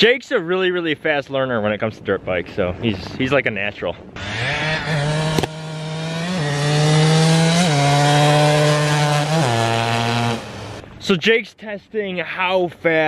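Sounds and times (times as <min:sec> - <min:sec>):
two-stroke dirt bike engine accelerating: 0:04.2 - 0:10.8.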